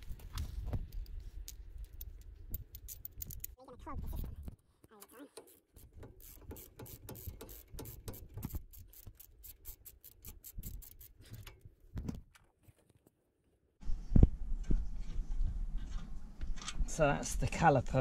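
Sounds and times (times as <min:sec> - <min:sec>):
hand ratchet clicking: 0:05.0 - 0:11.6.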